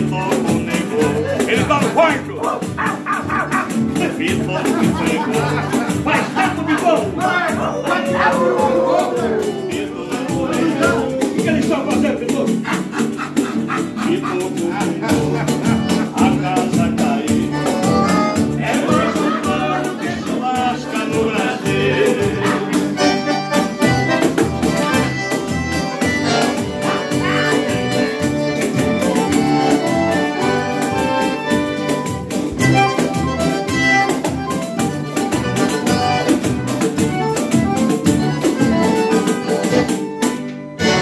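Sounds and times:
accordion music: 0.0 - 41.0
viola caipira: 0.0 - 41.0
shaken tambourine: 2.4 - 10.9.

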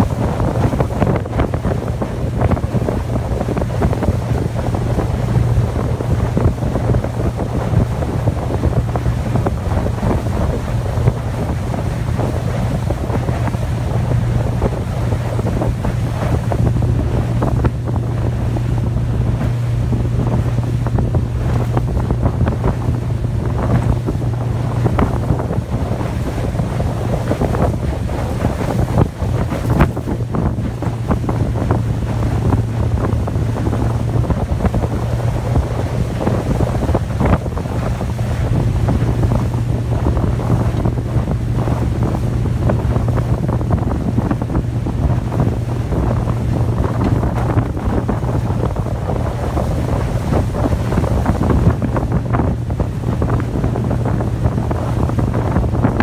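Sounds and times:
boat wake rushing: 0.0 - 56.0
outboard motor droning: 0.0 - 56.0
wind buffeting microphone: 0.0 - 56.0.

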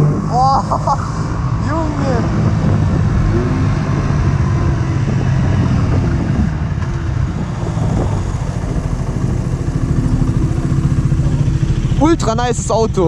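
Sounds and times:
motorcycle engine chugging: 4.2 - 13.0.

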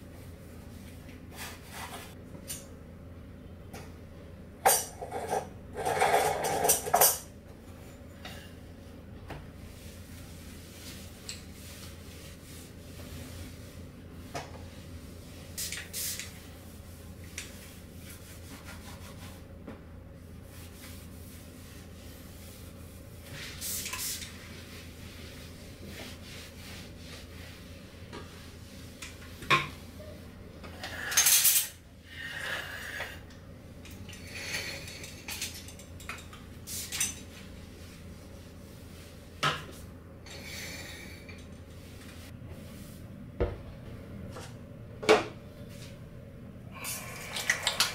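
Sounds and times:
dishes and cutlery clinking: 4.6 - 8.4.

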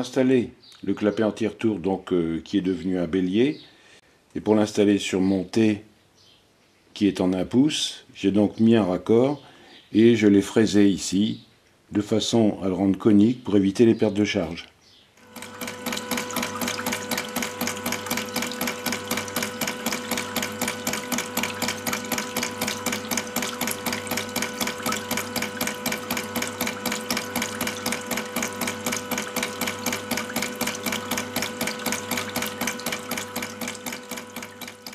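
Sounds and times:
valve clacking rhythmically: 15.2 - 34.9.

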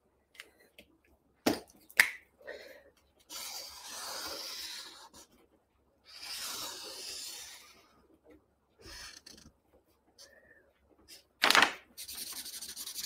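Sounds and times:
marker drawing on paper: 3.2 - 5.4, 6.0 - 8.0, 8.8 - 9.5, 12.0 - 13.0.

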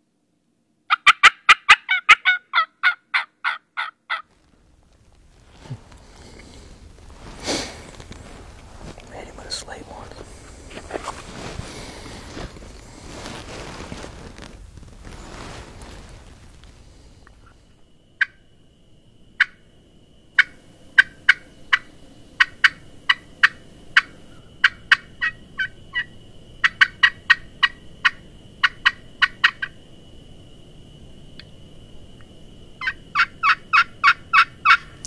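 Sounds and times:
turkey call clucks and yelps: 0.9 - 4.2, 22.4 - 29.7, 32.8 - 35.0.

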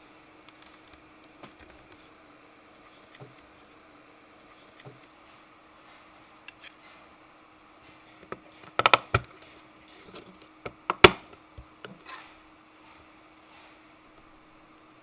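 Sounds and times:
plastic parts clicking together: 8.2 - 9.4.

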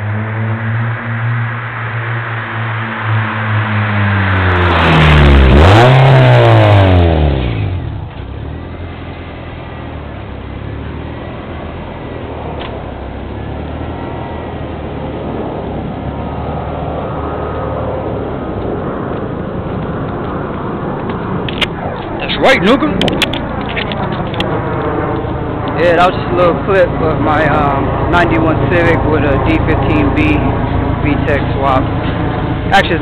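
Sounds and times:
car engine revving past: 0.0 - 9.9.

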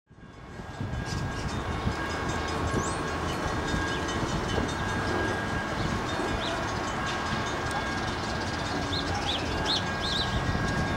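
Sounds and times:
train low rumble: 0.1 - 10.9.

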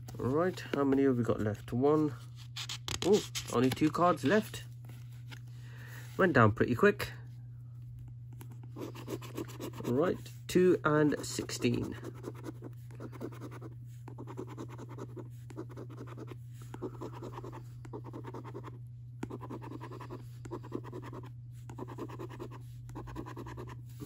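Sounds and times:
low steady hum: 0.0 - 24.0
coin scratching scratchcard: 8.8 - 10.0, 11.6 - 16.4, 17.0 - 23.8.

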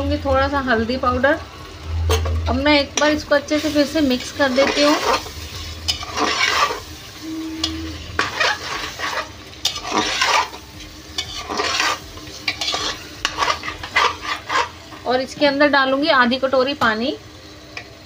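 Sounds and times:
food frying: 0.0 - 18.0
metal spatula scraping pot: 3.0 - 10.6, 11.2 - 15.0.

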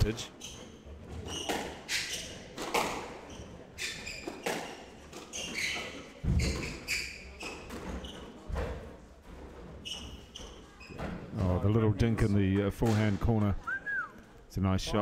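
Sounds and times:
shoes squeaking on wooden floor: 0.1 - 11.6
squash ball cracking off rackets: 1.3 - 3.2.

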